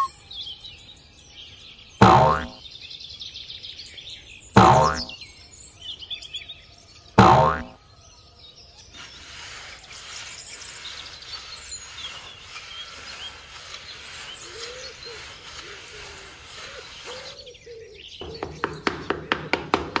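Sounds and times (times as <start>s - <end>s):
small birds chirping: 0.0s - 19.3s
tone sliding down in pitch: 2.0s - 2.6s, 4.6s - 5.1s, 7.2s - 7.7s.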